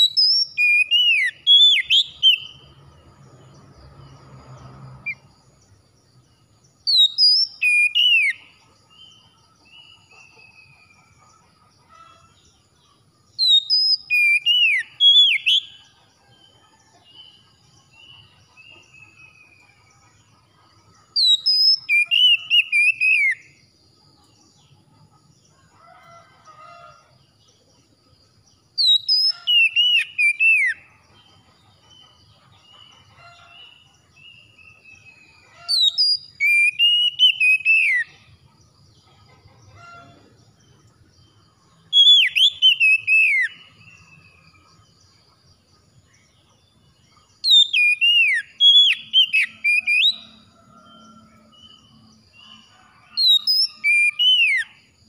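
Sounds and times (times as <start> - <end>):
bird whistling song: 0.0 - 2.6, 6.8 - 8.5, 13.4 - 15.8, 21.1 - 23.5, 28.8 - 30.9, 34.6 - 38.2, 41.9 - 44.2, 47.4 - 50.4, 53.2 - 54.8.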